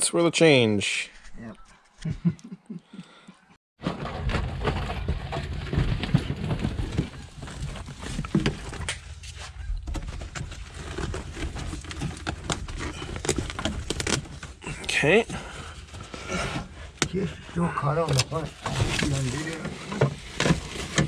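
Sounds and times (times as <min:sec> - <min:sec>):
car carpet rustling and scraping: 0:05.2 - 0:15.2, 0:18.2 - 0:21.0.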